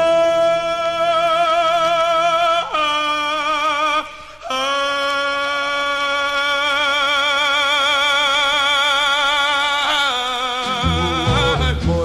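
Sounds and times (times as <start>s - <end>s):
person singing with vibrato: 0.0s - 12.0s
soul band playing: 10.7s - 12.0s.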